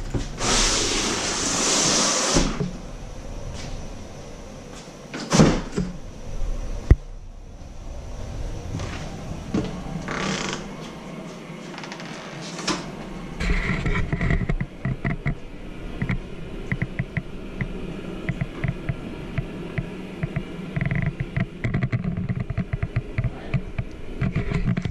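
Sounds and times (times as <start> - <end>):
low rumble: 2.6 - 5.1, 5.8 - 12.1, 12.8 - 24.9
footsteps on hard floors: 3.6 - 3.8.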